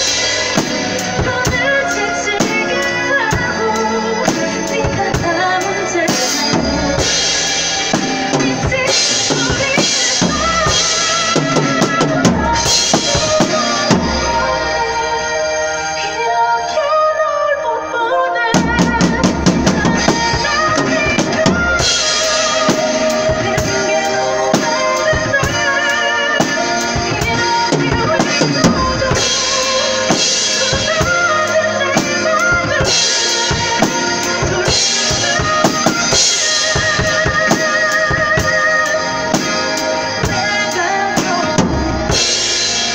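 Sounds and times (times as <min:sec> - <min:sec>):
drum kit playing: 0:00.0 - 0:15.7, 0:18.5 - 0:42.9
pop ballad with singer: 0:00.0 - 0:42.9.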